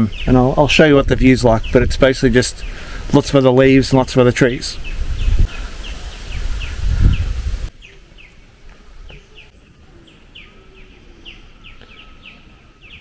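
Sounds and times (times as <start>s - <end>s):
bird chirping: 0.0s - 1.9s, 3.9s - 13.0s
wind buffeting microphone: 4.6s - 7.8s.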